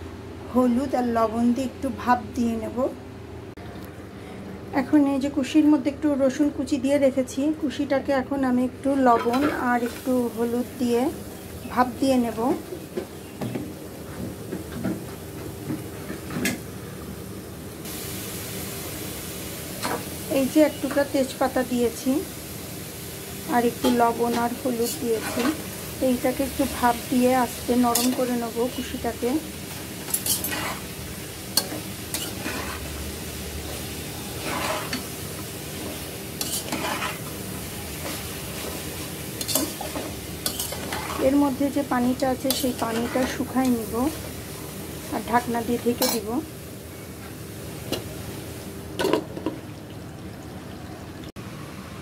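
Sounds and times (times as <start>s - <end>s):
vegetables sizzling: 4.8s - 52.0s
spatula scraping metal pot: 30.1s - 30.9s, 31.6s - 32.9s, 34.4s - 35.1s, 36.4s - 37.3s, 39.4s - 41.4s, 42.5s - 43.4s.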